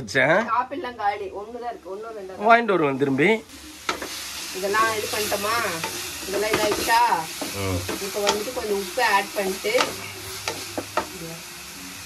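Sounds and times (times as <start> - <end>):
food sizzling in a pan: 0.2 - 12.0
spoon scraping a pan: 3.8 - 11.1.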